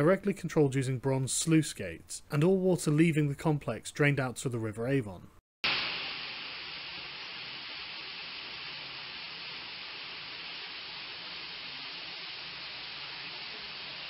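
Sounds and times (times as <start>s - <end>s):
water pouring and splashing: 5.6s - 14.0s.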